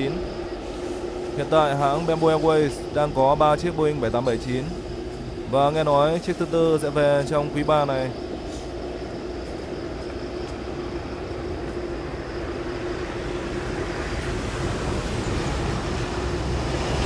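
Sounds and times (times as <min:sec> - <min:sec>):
jet engines rumbling with whine: 0:00.0 - 0:17.0.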